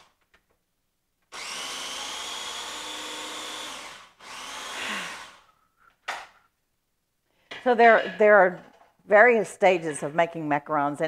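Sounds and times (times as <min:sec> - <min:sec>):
food processor grinding: 0:01.3 - 0:05.5.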